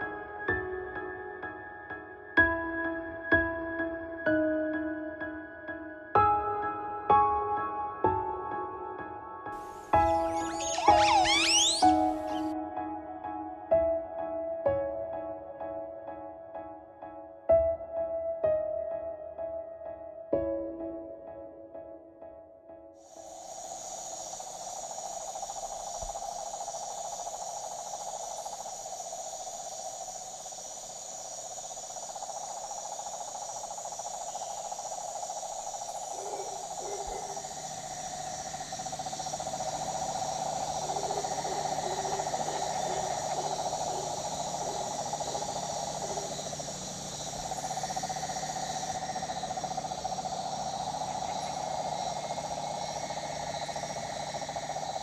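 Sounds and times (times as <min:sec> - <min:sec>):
insects calling: 0:09.6 - 0:12.9, 0:23.0 - 0:55.0
animal low repeated notes: 0:36.0 - 0:54.8.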